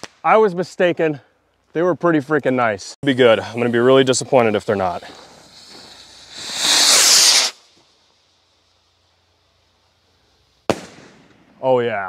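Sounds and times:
firework rocket whoosh: 3.3s - 11.4s
firework burst crack: 3.5s - 9.6s, 10.5s - 11.6s.

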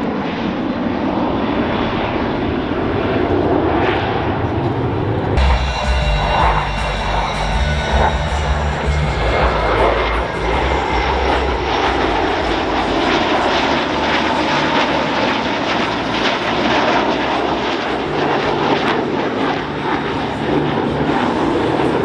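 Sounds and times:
jet engines roaring with crackle: 0.0s - 22.0s.

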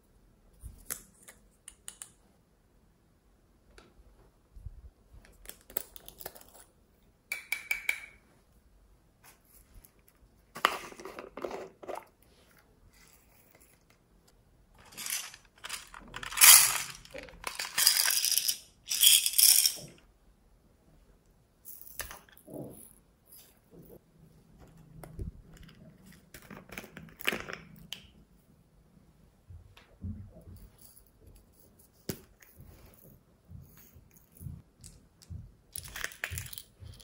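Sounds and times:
beads rattling into glass bowl: 14.8s - 19.9s.

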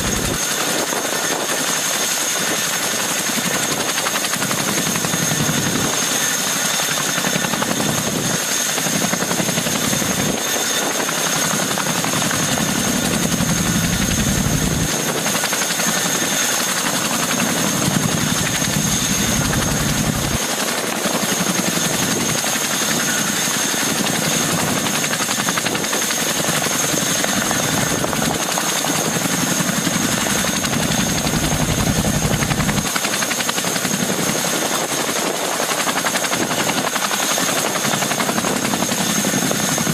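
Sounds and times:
high turbine whine: 0.0s - 0.6s, 17.4s - 20.7s
helicopter rotors rushing: 0.0s - 39.9s.

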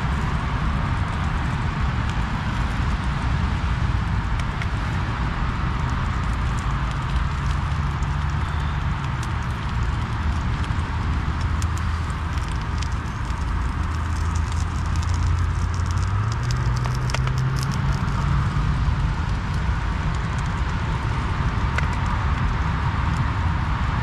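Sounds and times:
food frying in a pan: 0.0s - 24.0s
road traffic drone: 0.0s - 24.0s.

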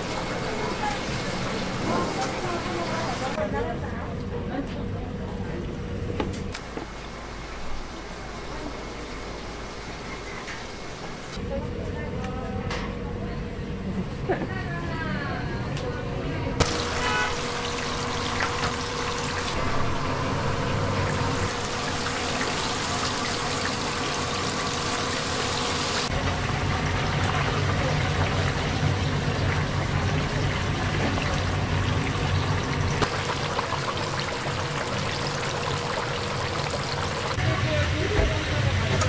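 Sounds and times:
chicken deep-frying in oil: 0.0s - 3.4s, 16.6s - 39.0s.

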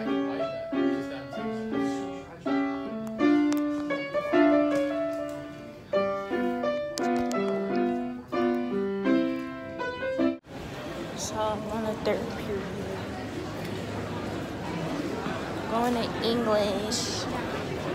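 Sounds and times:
piano music: 0.0s - 10.5s.

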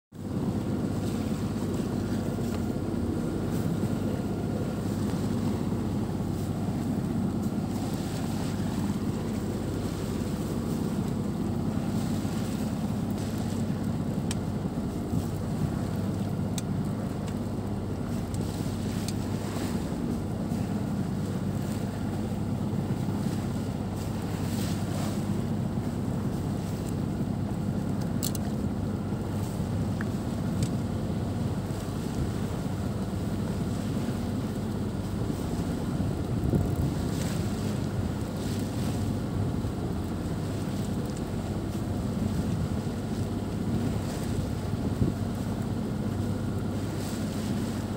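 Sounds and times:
water along hull: 0.1s - 47.9s
wind on microphone: 29.0s - 47.9s.

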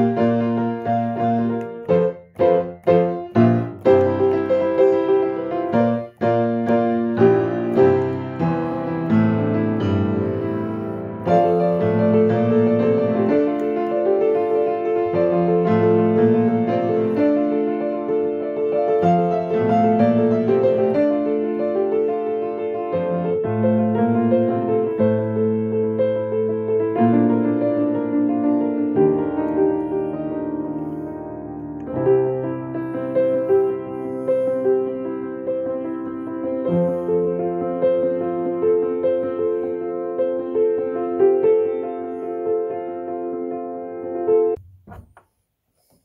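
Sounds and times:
piano playing flowing chords: 0.0s - 44.6s.

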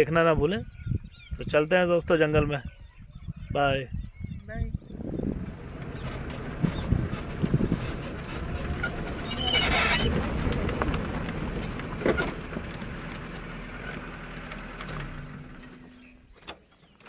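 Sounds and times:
wind noise on microphone: 0.0s - 12.8s
vehicle engine rumble: 2.4s - 17.0s
bird calling: 5.8s - 10.3s.

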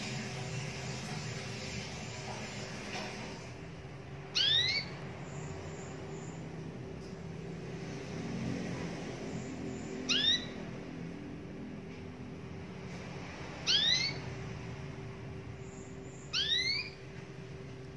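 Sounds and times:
low background hum: 0.0s - 17.9s
canary calls: 4.3s - 6.4s, 9.2s - 10.8s, 13.6s - 14.4s, 15.7s - 17.1s.

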